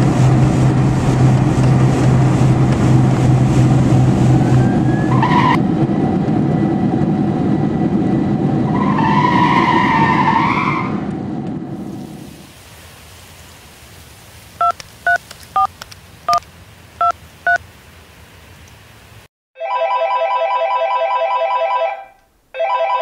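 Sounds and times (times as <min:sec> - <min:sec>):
touch-tone keypad beeps: 0:14.6 - 0:15.7, 0:17.0 - 0:17.6.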